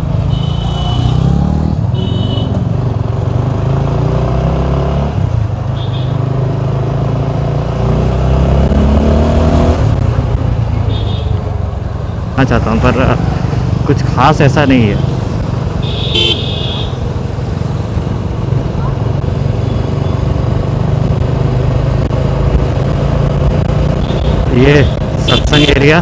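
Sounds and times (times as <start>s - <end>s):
motorcycle engine accelerating: 6.2s - 10.8s, 17.0s - 25.2s.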